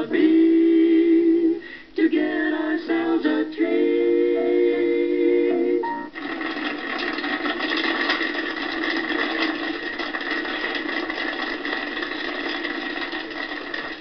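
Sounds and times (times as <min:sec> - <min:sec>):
popcorn popping: 0:05.8 - 0:14.0.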